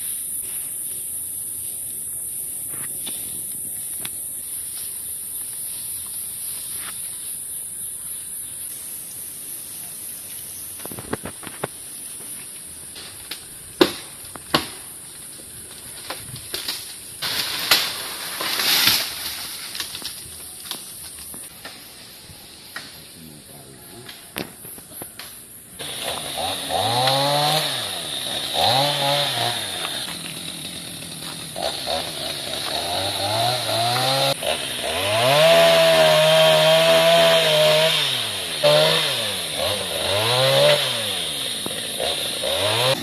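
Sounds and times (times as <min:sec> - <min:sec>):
insects droning: 0:00.0 - 0:43.0
branches snapping and rustling: 0:10.8 - 0:22.0, 0:24.0 - 0:36.9
sharp cracks: 0:15.7 - 0:21.8.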